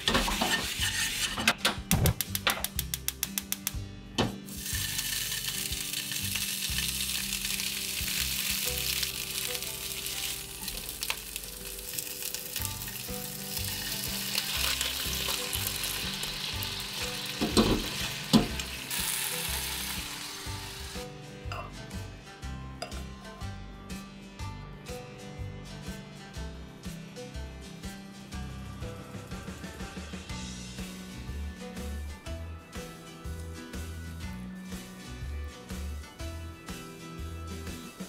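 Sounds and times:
tofu sizzling in frying pan: 0:04.5 - 0:21.1.

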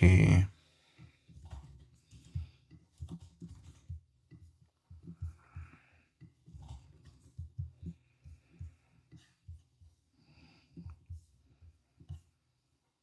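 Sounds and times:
faint breathing: 0:00.5 - 0:01.4, 0:05.0 - 0:06.3, 0:07.8 - 0:12.1.

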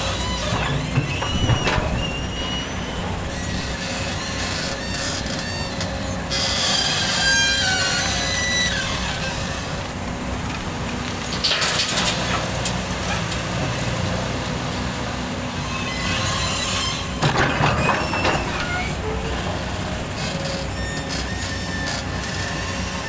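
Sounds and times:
high metallic squeal: 0:00.0 - 0:09.7, 0:20.2 - 0:23.0
excavator engine and hydraulics: 0:00.0 - 0:23.0.

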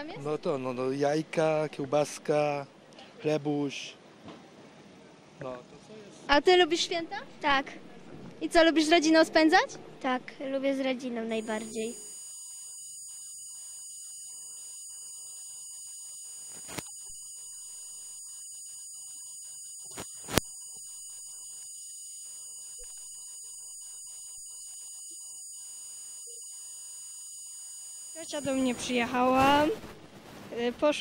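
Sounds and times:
high-pitched electronic whine: 0:11.4 - 0:30.5.

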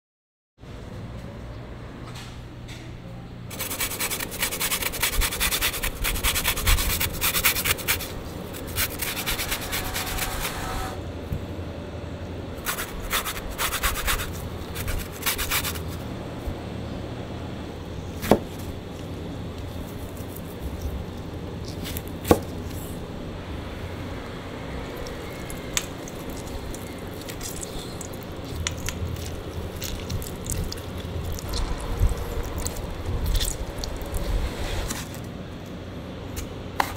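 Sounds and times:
grater rasping on lemon rind: 0:03.5 - 0:10.8, 0:12.6 - 0:16.0.

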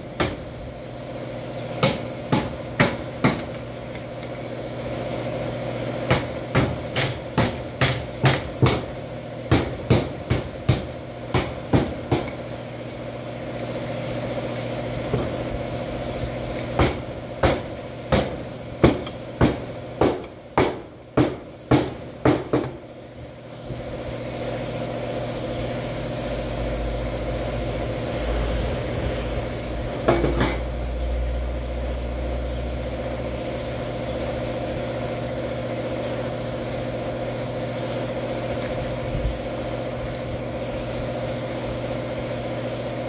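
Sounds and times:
hammer on metal: 0:06.1 - 0:08.9, 0:09.5 - 0:12.4.

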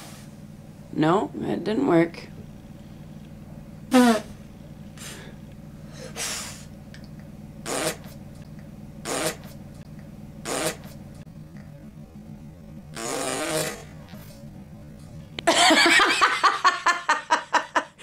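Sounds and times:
boy blowing raspberries: 0:03.9 - 0:04.4, 0:05.0 - 0:06.7, 0:07.6 - 0:08.2, 0:09.0 - 0:09.6, 0:10.4 - 0:11.0, 0:12.9 - 0:14.3.

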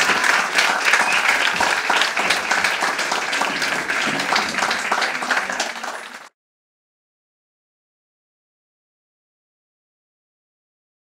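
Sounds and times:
audience clapping: 0:00.0 - 0:06.4.

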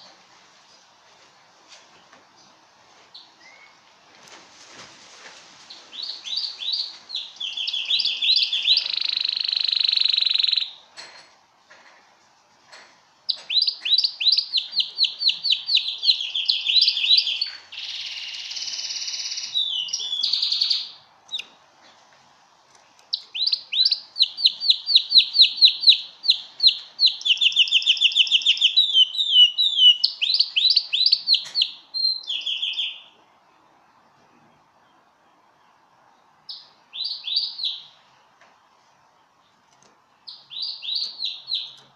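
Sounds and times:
canary singing trills: 0:05.7 - 0:10.9, 0:13.3 - 0:21.6, 0:22.9 - 0:38.4, 0:40.1 - 0:41.9.

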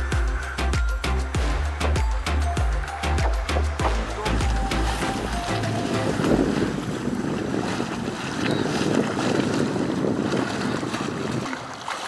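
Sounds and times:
river water rushing: 0:00.0 - 0:12.0
wind buffeting microphone: 0:03.7 - 0:12.0.

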